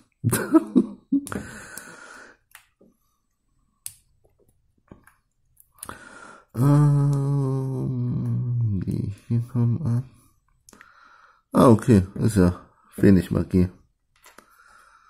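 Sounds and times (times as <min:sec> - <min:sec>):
man humming: 0:06.6 - 0:10.0
short vocal sound: 0:06.6 - 0:10.0.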